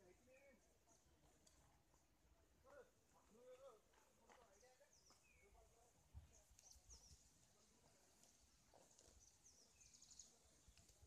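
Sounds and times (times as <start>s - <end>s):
faint high bird chirps: 4.5s - 7.6s, 8.3s - 11.0s.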